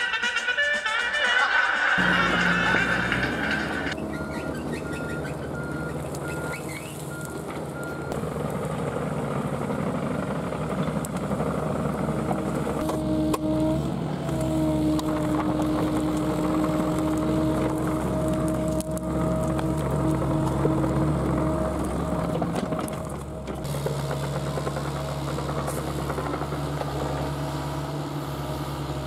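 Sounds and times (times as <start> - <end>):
hydraulic whine: 0.0 - 7.4
excavator diesel engine running: 0.0 - 29.0.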